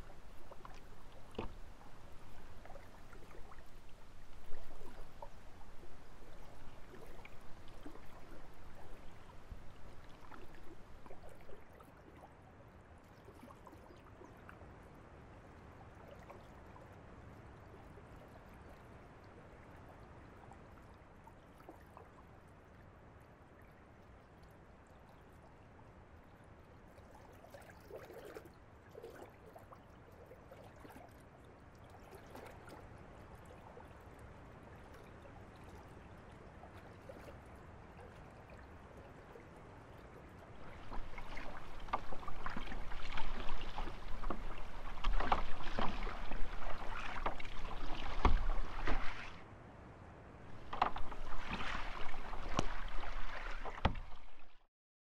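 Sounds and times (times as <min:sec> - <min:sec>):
paddle splashing: 0:00.0 - 0:12.3, 0:34.7 - 0:49.5, 0:50.4 - 0:54.7
water lapping against hull: 0:00.0 - 0:49.5, 0:50.4 - 0:54.7.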